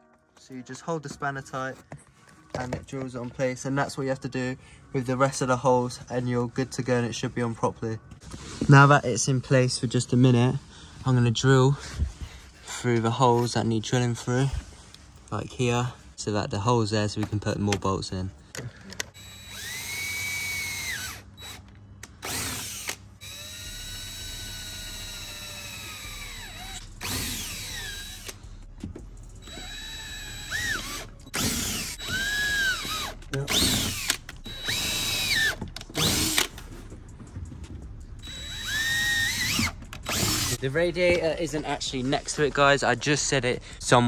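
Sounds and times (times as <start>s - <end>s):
cordless drill whine: 19.2s - 21.6s, 22.2s - 28.4s, 29.4s - 36.6s, 38.2s - 40.6s.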